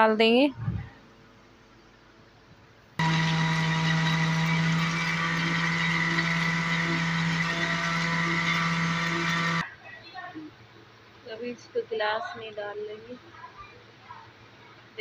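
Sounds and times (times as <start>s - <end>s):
electric mixer grinder running: 3.0s - 9.6s.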